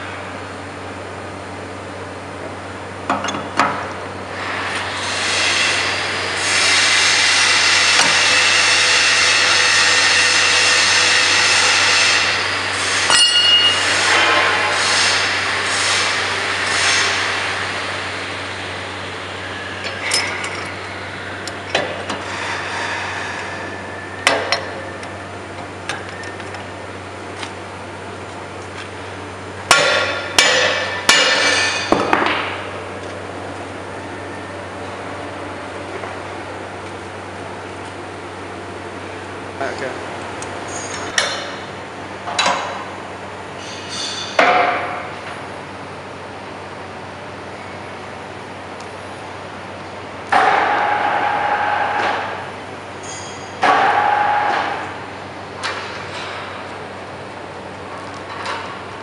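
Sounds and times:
steady mechanical noise: 0.0 - 59.0
metal tools clinking and knocking: 19.9 - 20.7.

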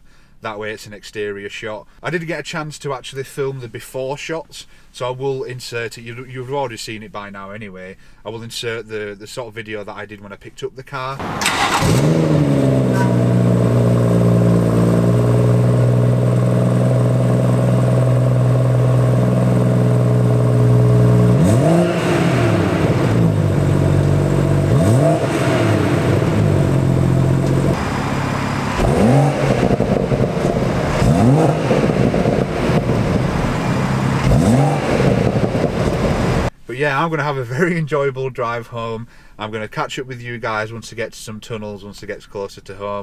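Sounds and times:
car engine idling and revving: 11.2 - 36.5.

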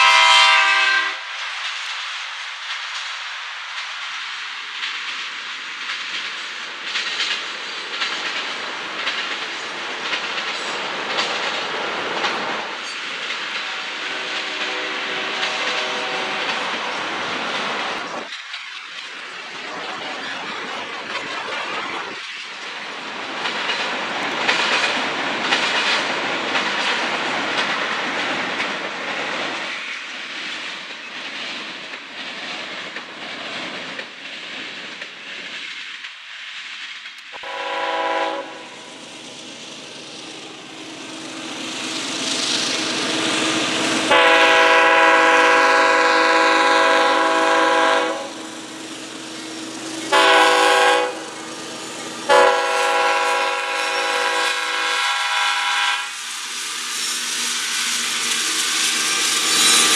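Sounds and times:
locomotive air horn blasts: 0.0 - 1.2, 13.6 - 16.4, 37.4 - 38.8, 44.1 - 48.4, 50.1 - 51.3, 52.3 - 56.1
train rolling by: 0.0 - 59.9.

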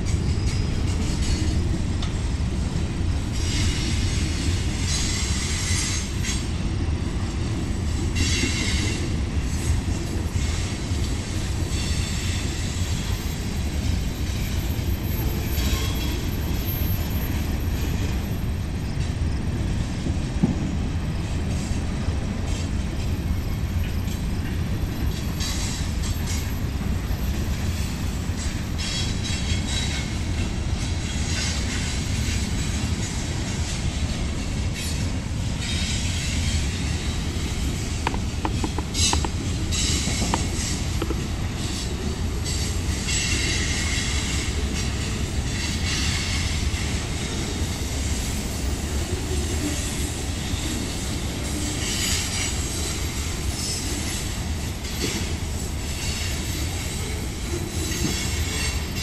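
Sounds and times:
train wheel squeals: 0.0 - 6.6, 7.8 - 21.8, 22.4 - 59.0
freight train rumbling past: 0.0 - 59.0
hiss: 3.3 - 6.5, 27.7 - 37.9, 39.0 - 59.0.

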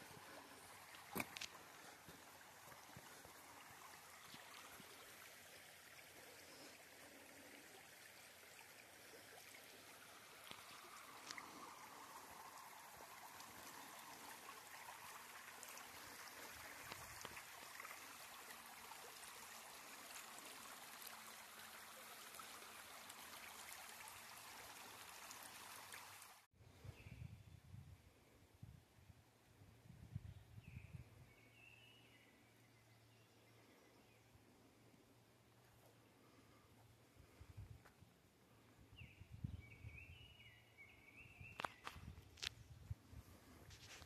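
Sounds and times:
stream water rushing: 0.0 - 26.5.

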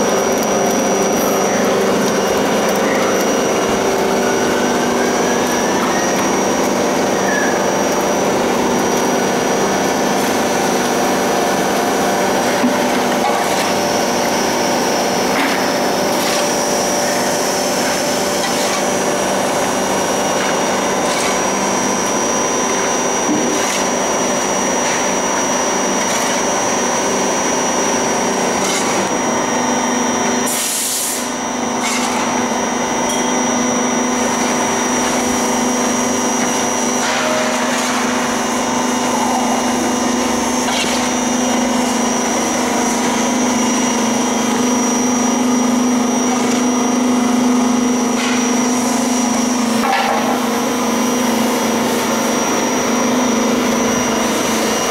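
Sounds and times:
oil press humming: 0.0 - 54.9
metal shovel scraping: 18.4 - 18.9, 20.3 - 21.6, 23.5 - 24.0, 28.6 - 29.1, 31.8 - 32.3, 40.6 - 41.2.

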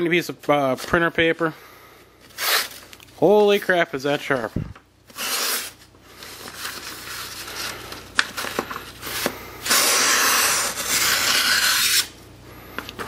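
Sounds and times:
knife slicing paper: 2.4 - 2.8, 5.1 - 7.8, 9.1 - 12.2.

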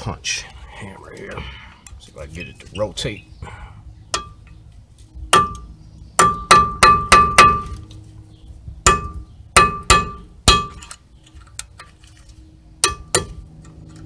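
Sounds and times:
hammer striking steel punch: 5.3 - 7.8, 8.9 - 10.9, 12.8 - 13.4.

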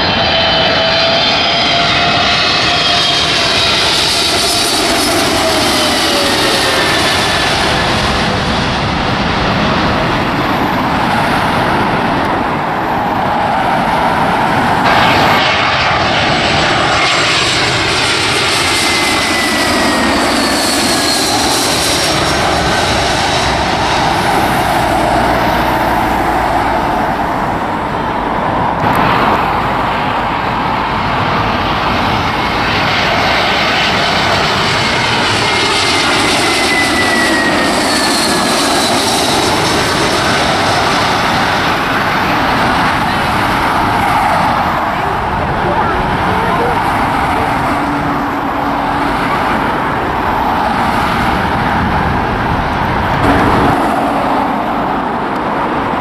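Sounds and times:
jet airliners passing overhead: 0.0 - 56.0.

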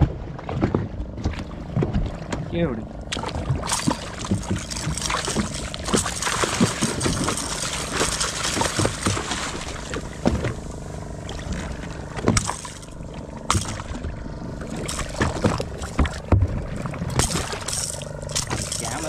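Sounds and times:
fish splashing in water: 3.1 - 19.0
sharp knocks: 12.2 - 12.8.

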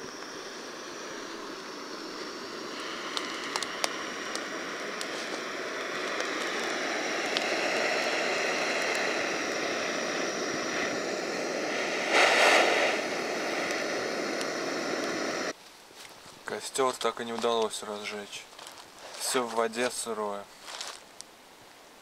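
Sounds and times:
gas burner hissing: 0.0 - 15.6
sharp ticks: 3.1 - 5.1.

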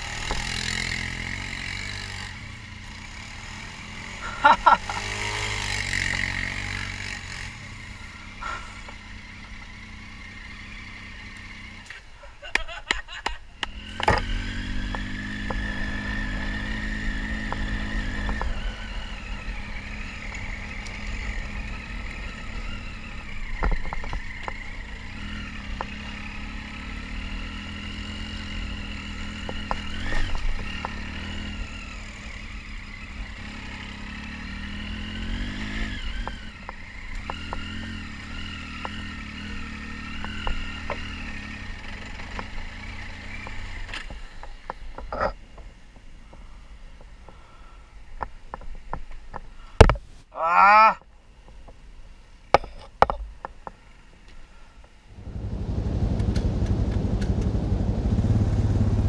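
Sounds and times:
motorcycle engine: 0.0 - 12.8, 13.5 - 46.5, 55.1 - 59.0
motorcycle knocks and rattles: 11.9 - 15.9, 17.4 - 18.6, 23.3 - 24.8, 29.3 - 31.2, 40.1 - 41.2, 42.0 - 47.4, 48.2 - 50.1, 52.5 - 53.8, 55.2 - 59.0.

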